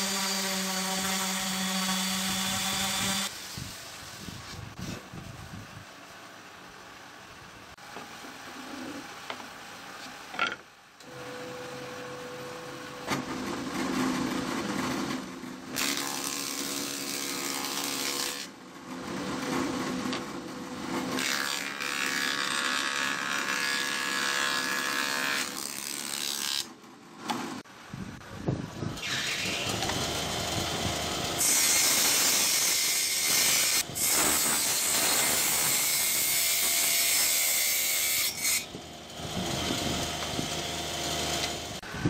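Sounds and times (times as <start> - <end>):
boards being planed: 15.8 - 27.6, 29.0 - 40.7.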